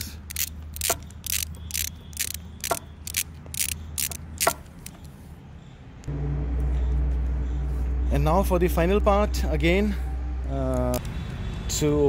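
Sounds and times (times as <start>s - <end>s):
ratchet wrench clicking: 0.0s - 5.1s.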